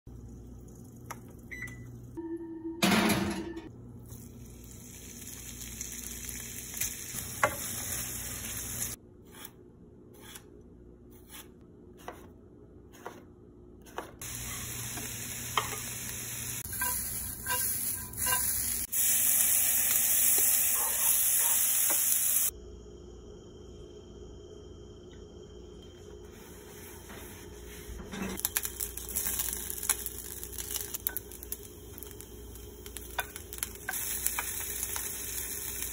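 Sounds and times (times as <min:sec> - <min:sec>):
vegetables sizzling in oil: 0:04.0 - 0:09.0, 0:14.2 - 0:22.5, 0:28.4 - 0:35.9.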